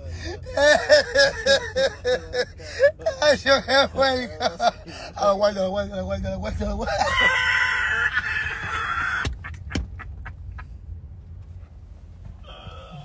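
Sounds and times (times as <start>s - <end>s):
low rumble inside car: 0.0s - 13.0s
man laughing high-pitched: 0.2s - 5.0s, 6.8s - 10.6s.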